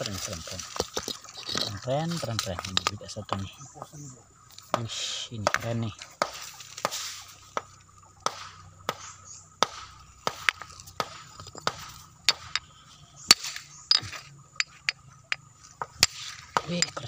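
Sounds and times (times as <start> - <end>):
hammer knocking on stone: 13.9 - 17.0.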